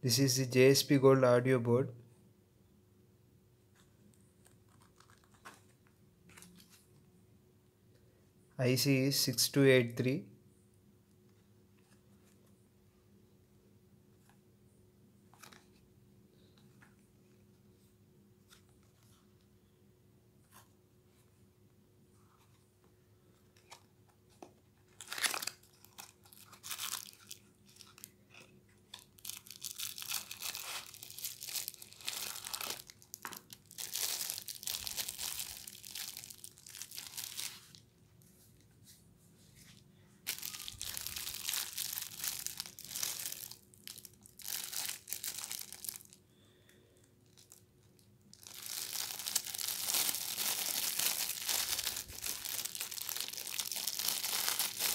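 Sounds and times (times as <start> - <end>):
plastic bag crinkling: 24.9 - 28.2, 28.9 - 37.8, 40.2 - 46.2, 47.2 - 54.9.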